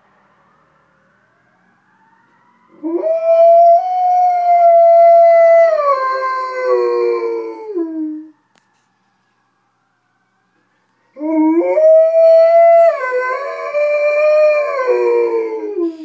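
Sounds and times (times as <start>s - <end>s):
distant fire engine sirens: 0.0s - 16.0s
dog howling: 2.8s - 8.3s, 11.2s - 16.0s.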